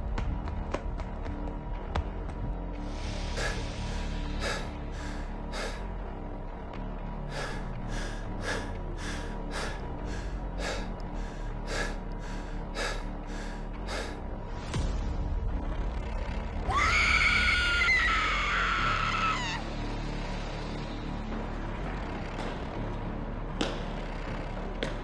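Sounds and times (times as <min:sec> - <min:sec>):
low background music: 0:00.0 - 0:25.0
person panting hard: 0:03.4 - 0:06.0, 0:07.3 - 0:14.4.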